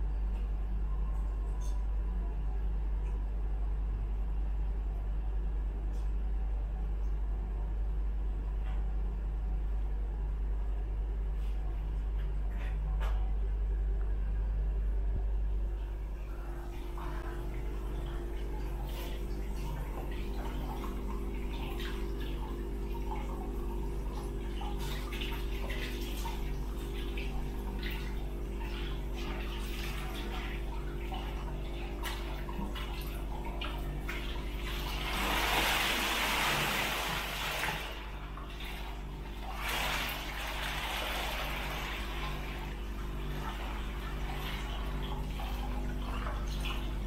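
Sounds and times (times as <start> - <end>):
water trickling: 16.0 - 47.0
water pouring into a tub: 16.6 - 47.0.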